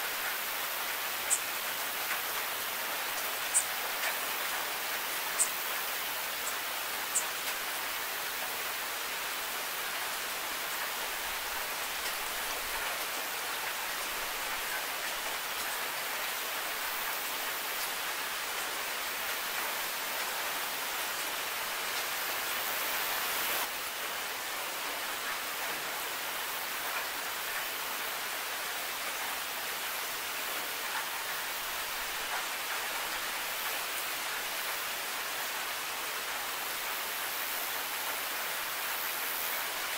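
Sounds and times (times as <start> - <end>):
steady rain: 0.0 - 39.9
rain drop ticks: 3.1 - 5.5.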